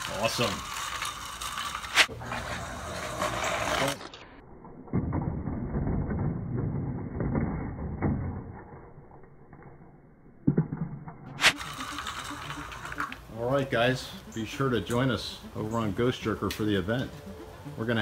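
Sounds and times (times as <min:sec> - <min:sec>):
toy truck wheels rattling on track: 0:00.0 - 0:04.2, 0:11.4 - 0:18.0.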